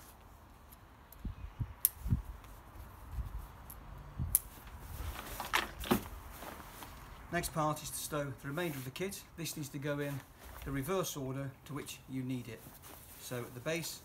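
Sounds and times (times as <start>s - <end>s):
rucksack fabric rustling: 4.5s - 11.3s, 12.2s - 14.0s.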